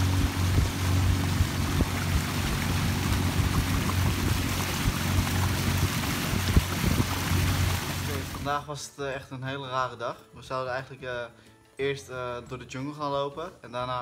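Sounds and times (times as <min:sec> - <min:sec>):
outboard motor running: 0:00.0 - 0:08.5
water and wind hissing along hull: 0:00.0 - 0:08.5.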